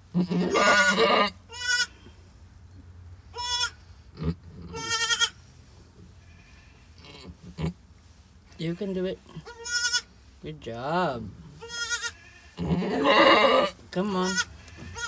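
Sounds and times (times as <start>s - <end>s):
goat bleating: 0.1s - 2.1s, 3.3s - 5.4s, 6.2s - 7.8s, 9.3s - 10.1s, 11.6s - 15.0s.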